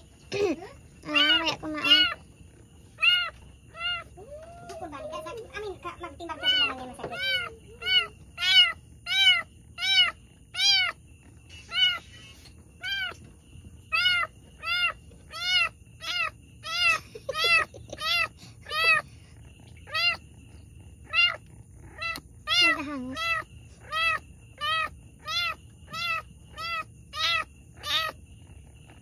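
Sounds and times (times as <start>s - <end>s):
cat meowing: 1.0s - 2.2s, 3.0s - 5.2s, 6.3s - 11.0s, 11.7s - 12.1s, 12.8s - 13.2s, 13.9s - 19.0s, 19.8s - 20.3s, 21.0s - 28.2s.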